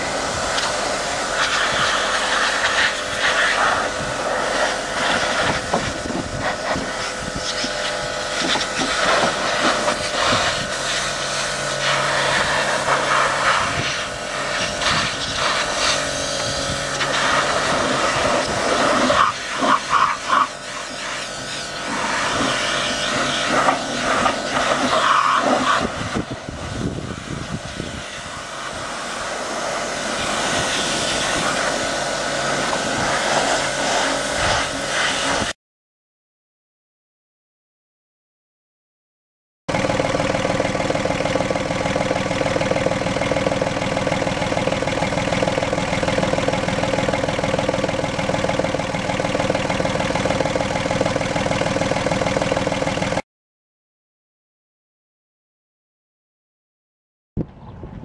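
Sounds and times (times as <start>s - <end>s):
water jet spraying a deck: 0.0s - 26.8s, 27.4s - 35.5s
pressure washer motor whining: 0.0s - 35.5s, 39.7s - 53.2s.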